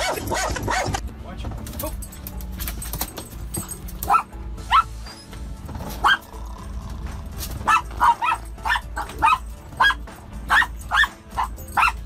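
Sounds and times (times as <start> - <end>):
small dog barking: 4.0 - 5.1, 5.9 - 6.3, 7.6 - 12.0.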